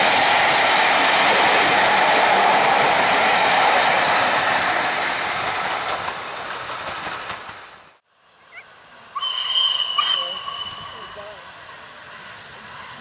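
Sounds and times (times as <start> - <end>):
train coaches rolling on rails: 0.0 - 8.0, 9.0 - 13.0
steam locomotive whistle: 9.2 - 11.5.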